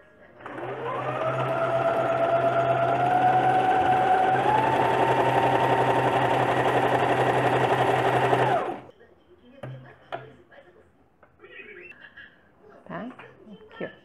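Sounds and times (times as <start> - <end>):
sewing machine running: 0.4 - 8.9.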